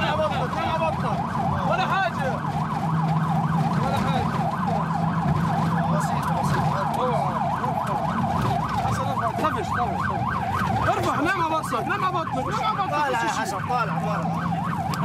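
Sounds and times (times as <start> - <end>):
ambulance siren yelping: 0.0 - 15.0.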